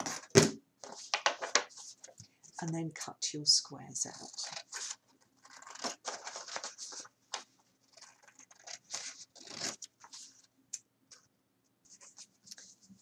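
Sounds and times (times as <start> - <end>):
card rustling: 0.0 - 2.6, 4.2 - 10.5.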